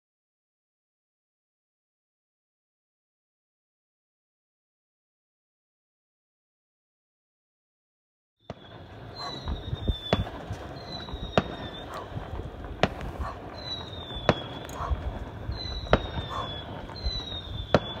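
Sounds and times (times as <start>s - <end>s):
firework whistle: 8.4s - 18.0s
firework bangs: 8.5s - 18.0s.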